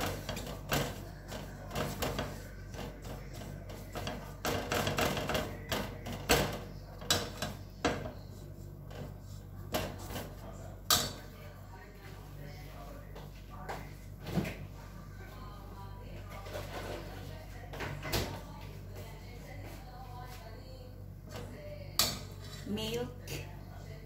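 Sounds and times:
spatula scraping a steel saucepan: 0:22.2 - 0:22.9.

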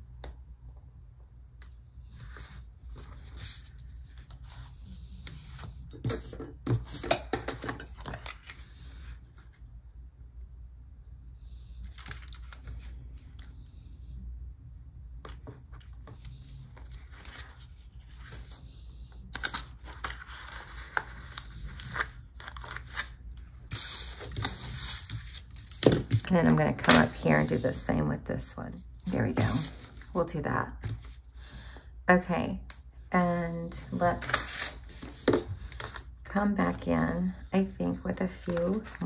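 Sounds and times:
paper handling: 0:19.3 - 0:26.3, 0:37.9 - 0:39.0.

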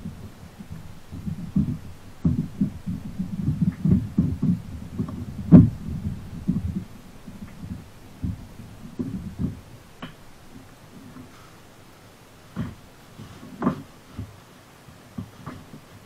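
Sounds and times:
thumps on a plastic kayak hull: 0:00.6 - 0:10.2.

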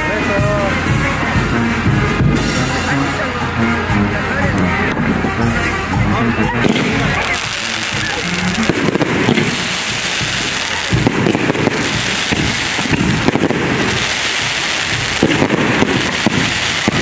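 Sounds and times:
fireworks crackling pops: 0:06.6 - 0:17.0
spark fountains hissing: 0:06.6 - 0:17.0.

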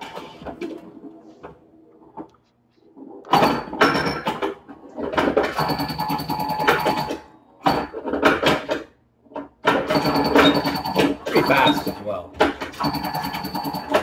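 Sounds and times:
pinball machine clacks and knocks: 0:03.3 - 0:14.0.

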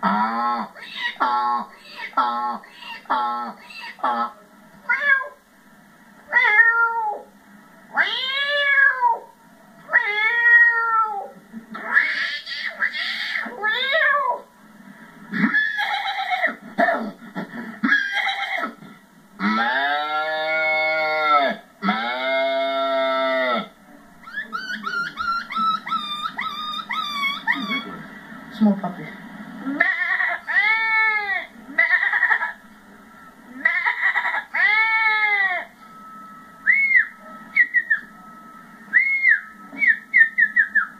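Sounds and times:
man imitating animal calls: 0:00.0 - 0:04.4, 0:19.4 - 0:23.7
whistled bird-like calls: 0:24.2 - 0:27.9, 0:36.6 - 0:38.2, 0:38.9 - 0:40.9
faint steady tone: 0:35.4 - 0:40.9.

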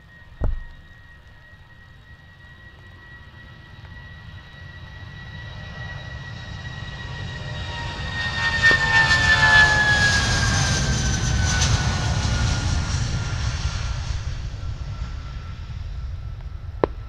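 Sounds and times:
deep rumble: 0:00.0 - 0:02.0
jet airliner passing: 0:00.0 - 0:17.0.

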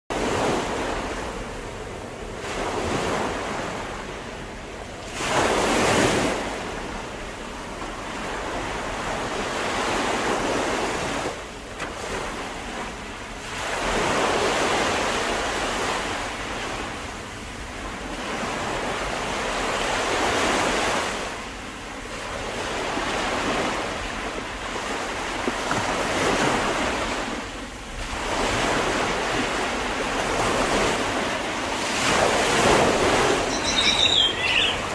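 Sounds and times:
ocean waves rushing: 0:24.6 - 0:34.9.

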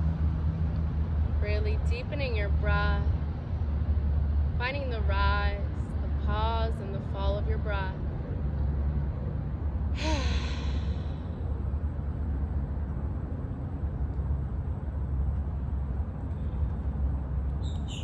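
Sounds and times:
low steady rumble: 0:00.0 - 0:18.0
woman sighing: 0:10.0 - 0:11.2.

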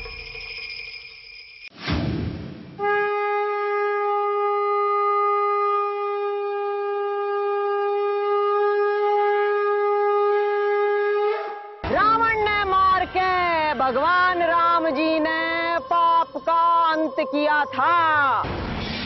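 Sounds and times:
brief rushing noise: 0:01.8 - 0:02.8
conch shell blown: 0:02.8 - 0:11.8.

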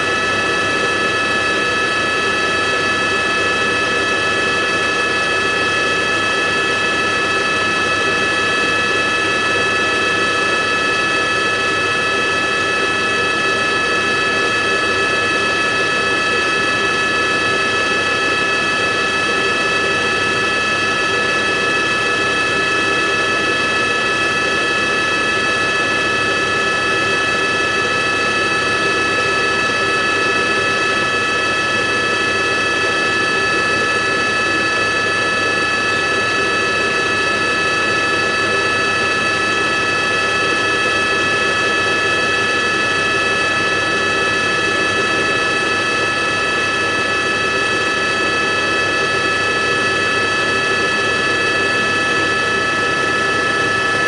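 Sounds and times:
helicopter turbine whine and rotor: 0:00.0 - 0:54.0.

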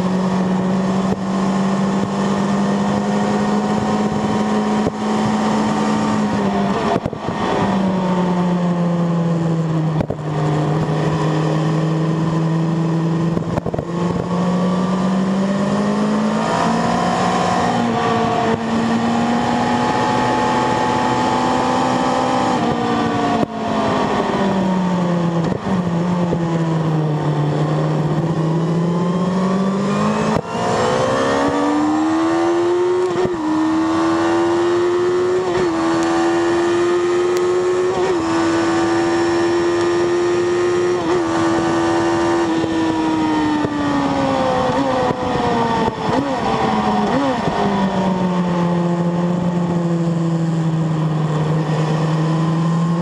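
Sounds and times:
motorcycle engine at speed: 0:00.0 - 0:53.0.

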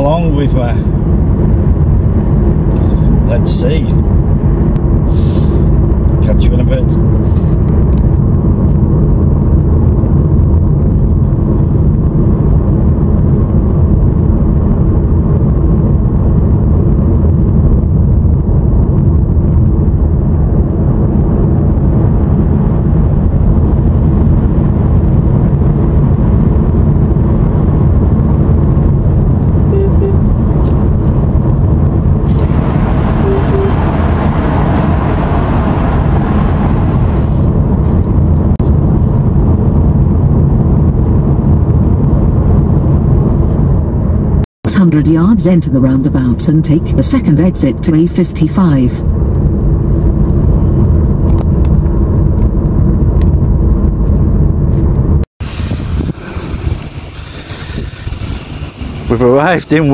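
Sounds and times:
car engine and tyre rumble: 0:00.0 - 0:59.9
hissing tyre noise: 0:04.9 - 0:05.9, 0:32.1 - 0:38.2, 0:55.4 - 0:59.9.

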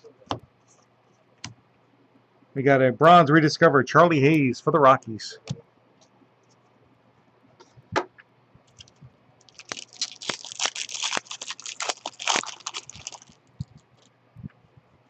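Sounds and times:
foil wrapper tearing and crinkling: 0:08.8 - 0:14.1.

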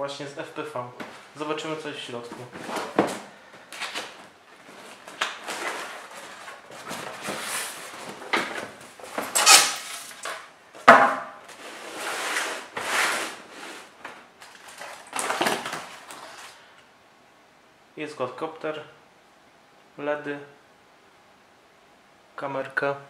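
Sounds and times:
cardboard flaps scraping: 0:02.2 - 0:10.4, 0:11.5 - 0:16.6
foam packing rubbing: 0:03.8 - 0:10.3, 0:11.5 - 0:16.6.

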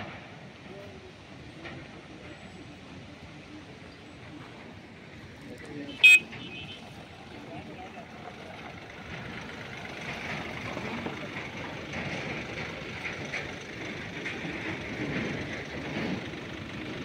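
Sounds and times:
car engine and tyres on gravel: 0:04.0 - 0:17.0.

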